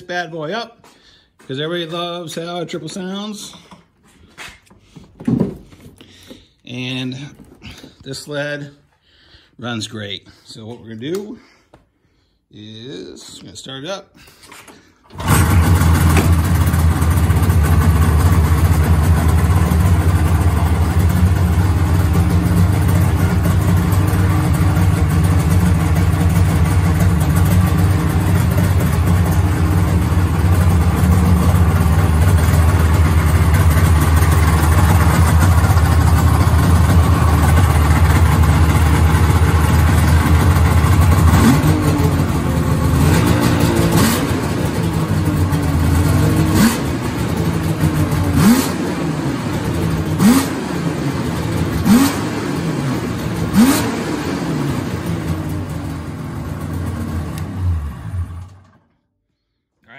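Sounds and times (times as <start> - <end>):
snowmobile engine idling and revving: 15.2 - 58.8.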